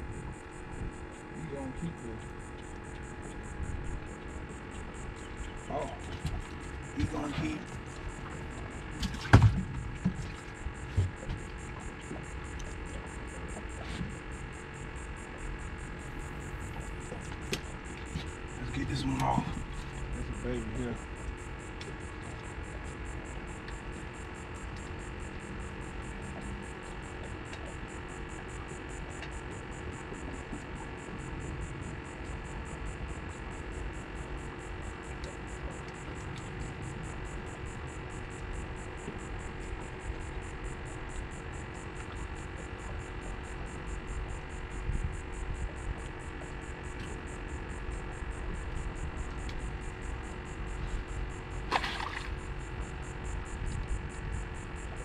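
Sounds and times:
steady hum with fixed tones: 0.0 - 55.0.

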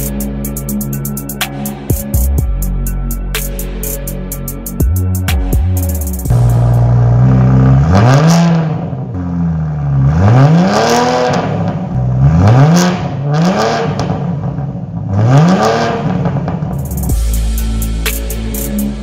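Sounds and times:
car engine revving: 6.2 - 19.0.

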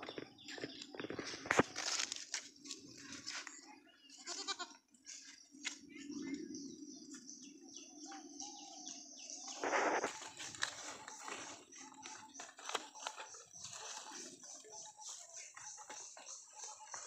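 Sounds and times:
small birds chirping: 0.0 - 17.0
goat kids bleating: 4.1 - 4.8.

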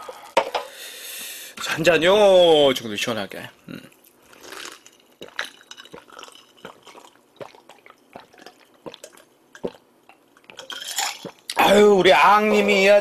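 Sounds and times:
throat and lip clicks: 3.8 - 11.6
wet gulping swallows: 4.2 - 11.6.

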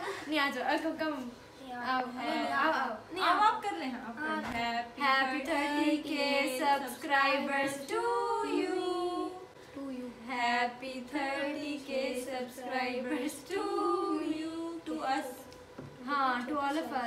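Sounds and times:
girls singing together: 4.4 - 15.9.

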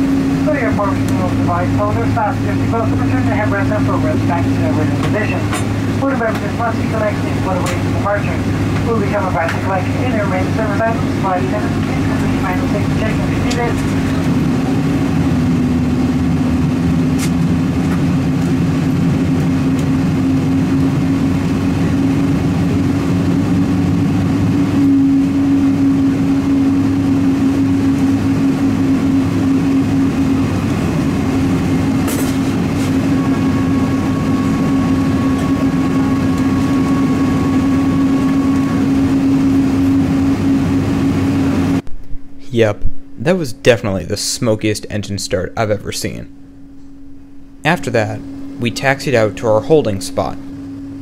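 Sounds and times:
jet engine spooling up: 0.0 - 41.8
thin high whine: 0.0 - 51.0.

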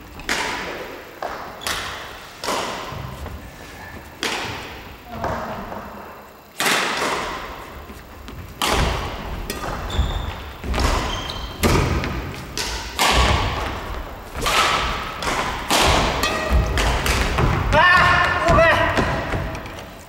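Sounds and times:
rackets hitting shuttlecock: 0.2 - 3.2, 4.2 - 4.9, 6.6 - 7.7, 8.3 - 19.9
footsteps on wooden floor: 7.8 - 8.5.

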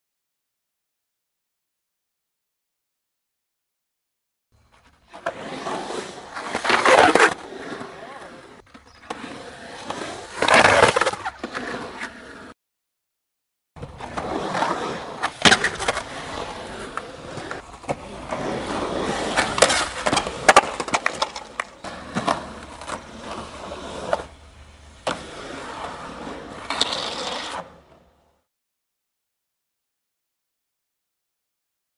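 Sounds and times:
skateboard wheels rolling on concrete: 4.6 - 12.6, 13.8 - 28.5
skateboard clacks: 13.8 - 24.4.

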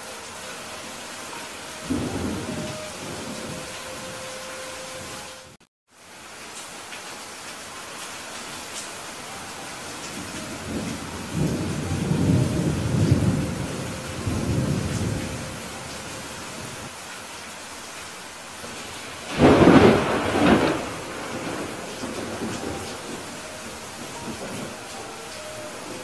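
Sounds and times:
thunder rumbling: 0.0 - 5.6, 9.9 - 16.9, 18.6 - 26.0
steady rain: 0.0 - 26.0
thunderclap: 19.3 - 23.4.

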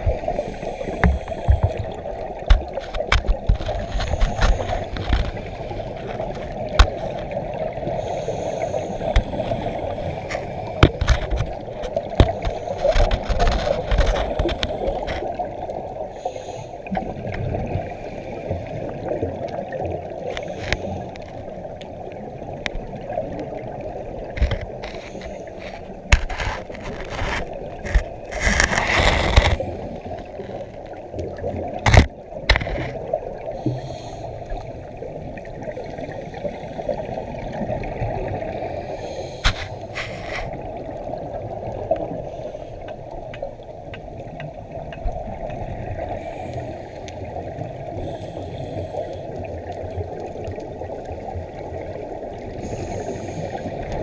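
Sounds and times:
underwater rush of water: 0.0 - 54.0
underwater clicks and knocks: 0.9 - 7.4, 9.0 - 15.3, 24.3 - 33.1, 39.4 - 40.6, 42.8 - 45.8.

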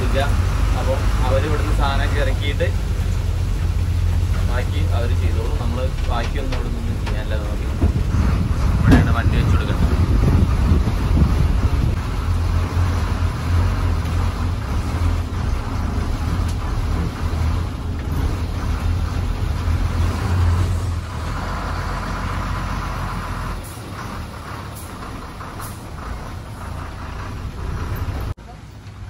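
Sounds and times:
diesel truck engine running: 0.0 - 29.0.

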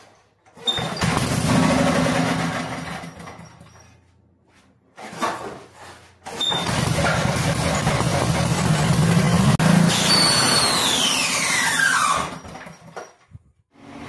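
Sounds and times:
generator engine running: 0.8 - 3.4, 6.4 - 12.7
recoil starter pull: 6.2 - 13.1.

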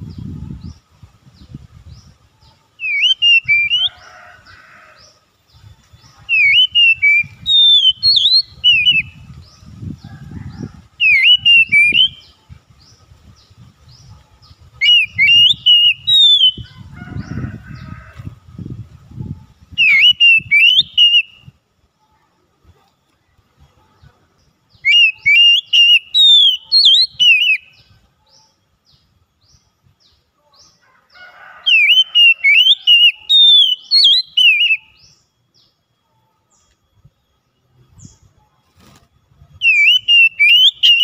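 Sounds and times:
bird singing whistled notes: 0.0 - 4.0, 5.5 - 9.9, 11.0 - 16.8, 19.1 - 21.6, 24.6 - 30.2, 31.7 - 38.4, 39.3 - 41.0.

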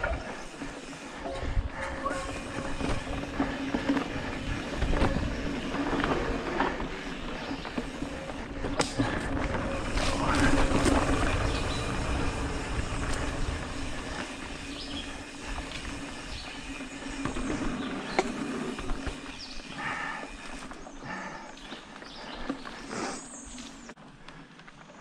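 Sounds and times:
bike rattling over bumps: 0.0 - 23.9
tyre and wind rush: 0.8 - 19.6.

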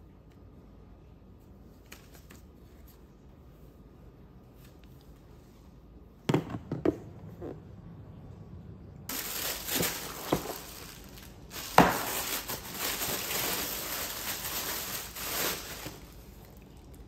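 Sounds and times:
tissue paper rustling: 9.1 - 16.4.

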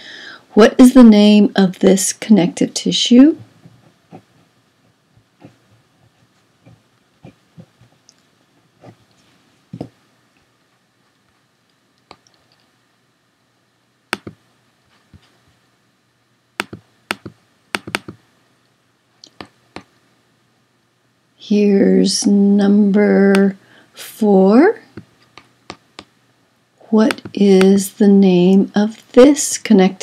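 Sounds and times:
computer mouse clicks: 14.1 - 14.4, 16.6 - 18.2.

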